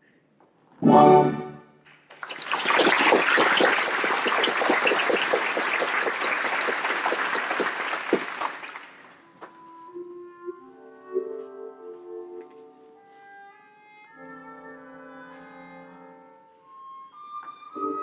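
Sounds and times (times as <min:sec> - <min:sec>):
audience applauding: 0:02.1 - 0:09.2.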